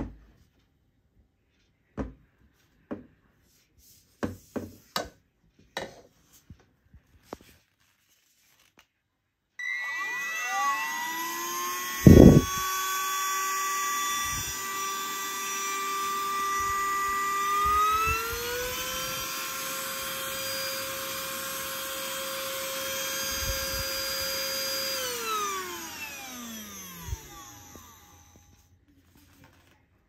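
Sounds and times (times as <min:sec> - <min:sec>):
handheld vacuum motor whining: 0:09.6 - 0:28.7.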